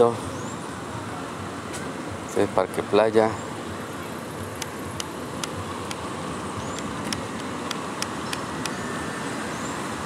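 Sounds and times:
road traffic noise: 0.0s - 10.0s
sharp clicks: 6.7s - 8.8s.

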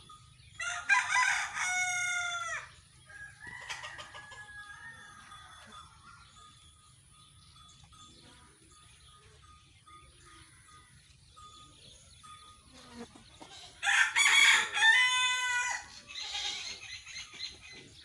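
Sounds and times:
rooster crowing: 0.6s - 5.8s, 13.8s - 15.9s.

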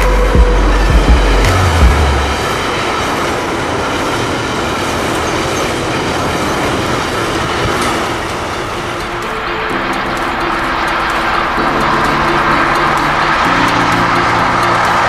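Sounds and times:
freight train rolling past: 0.0s - 15.0s
wheels clattering on rails: 0.0s - 15.0s.

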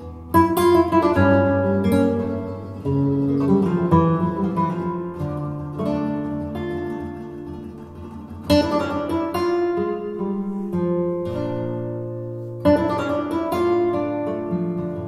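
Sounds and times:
flamenco guitar strumming: 0.0s - 15.0s.

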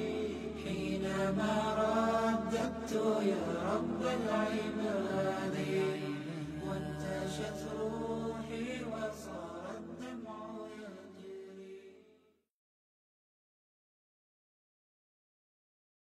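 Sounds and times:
voices chanting a melody: 0.0s - 11.5s.

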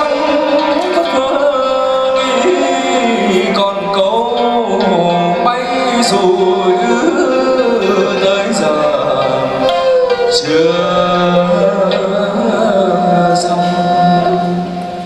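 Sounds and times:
melodic instruments: 0.0s - 15.0s
person singing: 0.0s - 15.0s.

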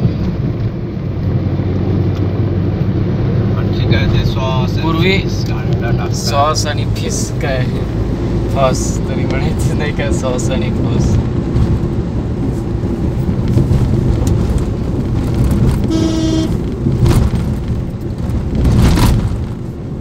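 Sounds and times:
car road and engine rumble: 0.0s - 20.0s
car horn toot: 15.9s - 16.7s.

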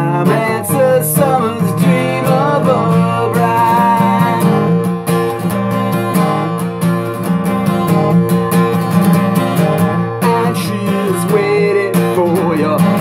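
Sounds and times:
person singing folk song: 0.0s - 6.6s, 9.8s - 13.0s
acoustic guitar strumming: 0.0s - 13.0s.

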